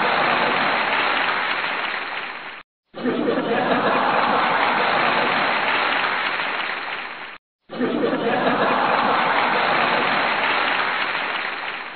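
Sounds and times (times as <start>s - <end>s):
crowd laughing: 0.0s - 1.2s, 2.9s - 6.3s, 7.7s - 11.5s
crowd applauding: 0.0s - 2.6s, 3.4s - 7.4s, 8.2s - 11.9s.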